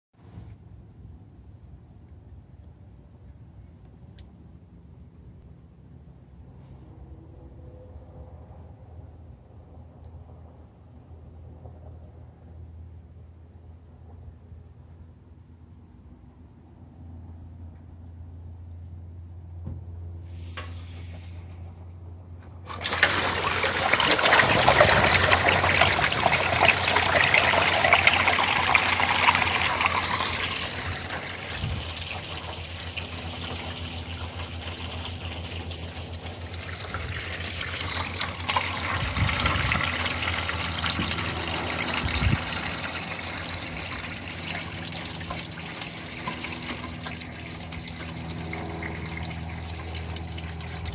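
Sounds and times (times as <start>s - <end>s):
water draining through gutter: 22.6s - 50.9s.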